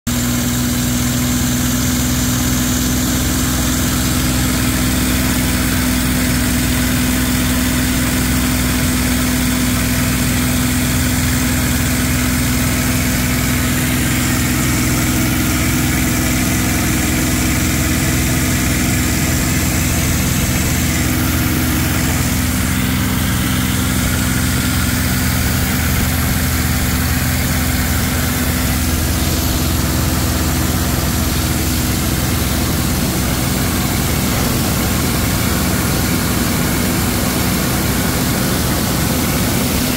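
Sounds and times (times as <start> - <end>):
small aircraft engine drone: 0.1 - 39.9
rushing air: 11.2 - 39.9.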